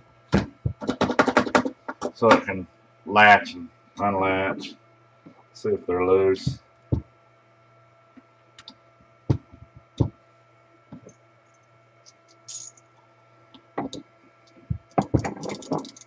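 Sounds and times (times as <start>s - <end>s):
faint steady hum: 0.0s - 16.0s
clicks and knocks of saw parts: 15.0s - 16.0s.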